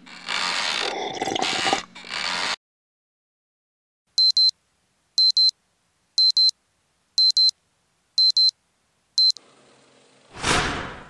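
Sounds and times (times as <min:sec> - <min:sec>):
electronic alarm double beeps: 0:04.2 - 0:04.5, 0:05.2 - 0:05.5, 0:06.2 - 0:06.5, 0:07.2 - 0:07.5, 0:08.2 - 0:08.5, 0:09.2 - 0:09.4.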